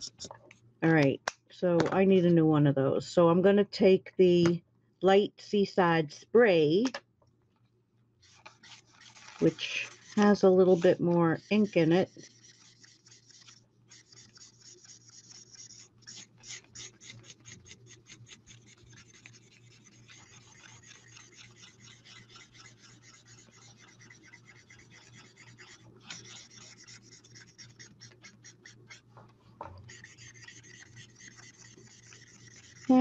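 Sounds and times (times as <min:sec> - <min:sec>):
marker tip rubbing on cardstock: 0:08.2 - 0:29.1, 0:29.8 - 0:33.0.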